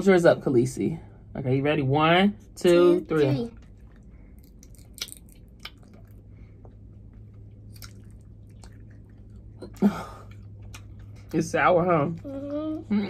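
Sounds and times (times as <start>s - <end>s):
low steady hum: 0.0s - 13.0s
wet chewing clicks and smacks: 3.5s - 12.9s.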